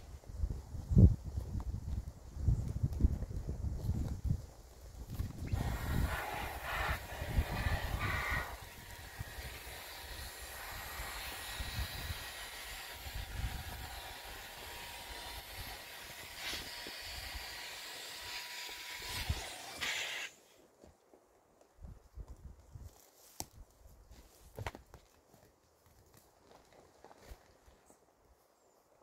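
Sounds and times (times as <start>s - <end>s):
electric air pump hissing: 5.5s - 20.4s.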